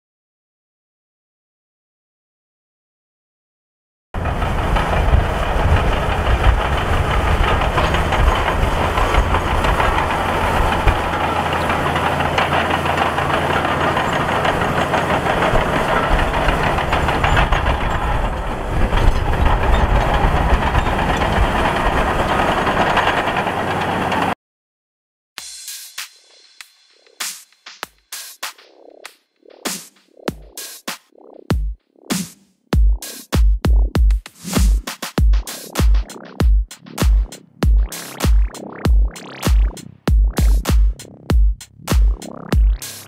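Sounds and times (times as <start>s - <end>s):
bulldozer diesel engine under load: 4.2s - 24.4s
steel tracks clanking: 4.2s - 24.4s.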